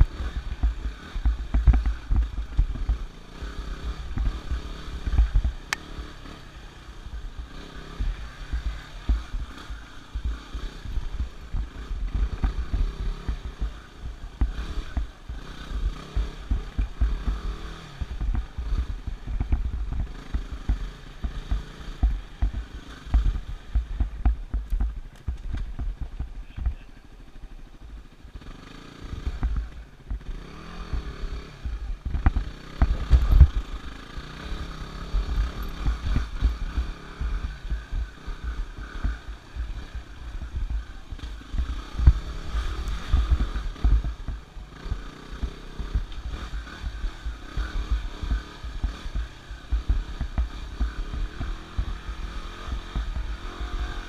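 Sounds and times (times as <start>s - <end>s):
dirt bike engine running: 0.0s - 54.0s
low rumble of thumps: 16.2s - 26.8s, 30.9s - 33.8s, 45.9s - 54.0s.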